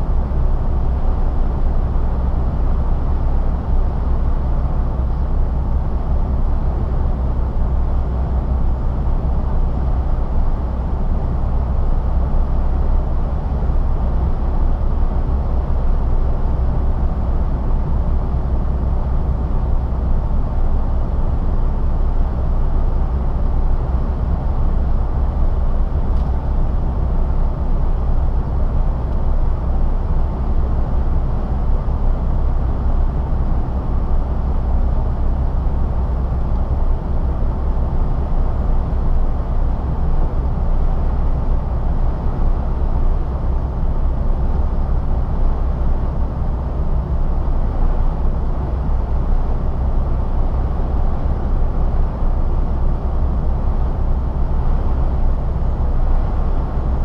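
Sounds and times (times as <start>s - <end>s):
truck diesel engine drone: 0.0s - 57.0s.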